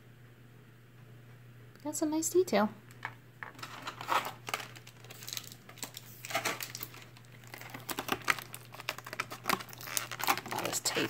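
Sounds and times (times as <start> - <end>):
plastic packaging crinkling: 3.4 - 11.0.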